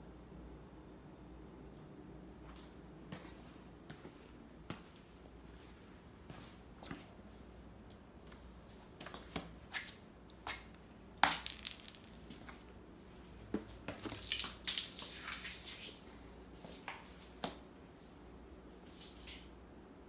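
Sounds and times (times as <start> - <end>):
cat paws clicking on tile floor: 13.6 - 17.6.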